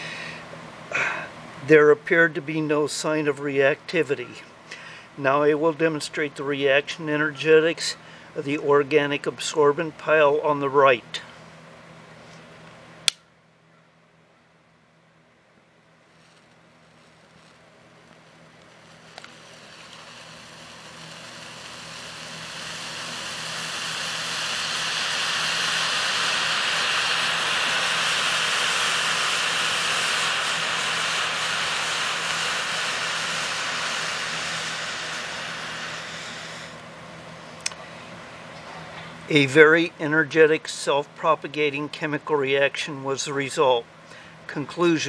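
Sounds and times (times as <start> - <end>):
single click: 13.1 - 13.3
burning mixture hissing rush: 16.0 - 37.6.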